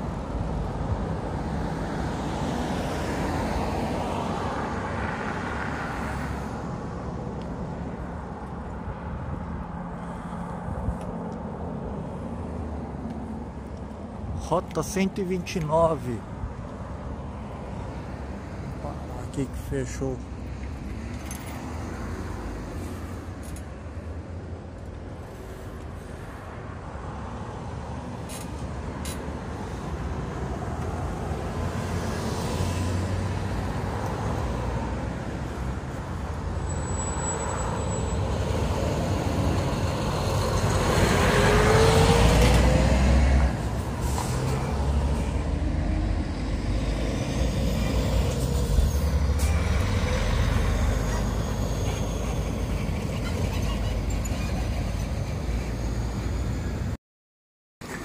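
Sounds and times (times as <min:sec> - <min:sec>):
heavy road traffic rumble: 0:00.0 - 0:57.0, 0:57.8 - 0:58.0
short high squeal: 0:48.3 - 0:56.1.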